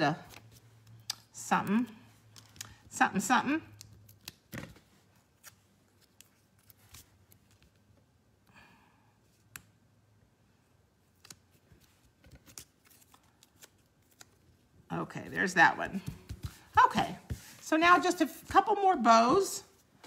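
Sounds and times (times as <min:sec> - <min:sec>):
soft paper rustle: 0:03.9 - 0:07.9, 0:11.1 - 0:14.6.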